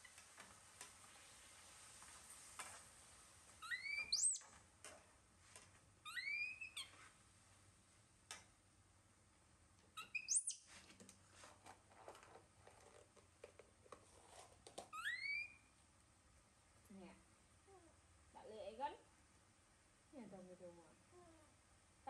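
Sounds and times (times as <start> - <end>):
baby monkey coo calls: 3.6 - 4.4.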